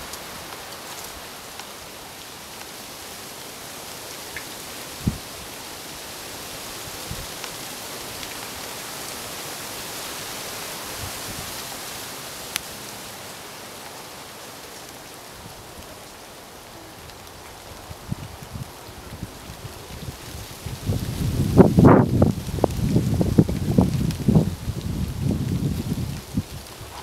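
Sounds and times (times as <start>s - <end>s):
rain hissing: 0.0s - 27.0s
wind buffeting microphone: 17.6s - 27.0s.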